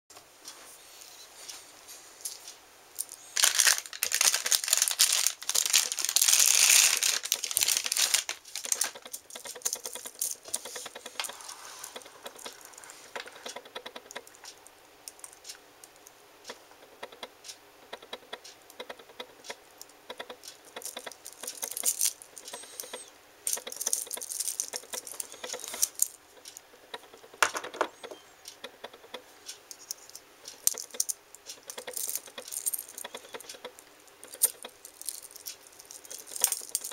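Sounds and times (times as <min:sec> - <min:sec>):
plastic bag crinkling and tearing: 0:03.3 - 0:10.3
metal watch bracelet clicking and rattling: 0:05.5 - 0:14.5, 0:20.2 - 0:26.2, 0:29.7 - 0:36.9.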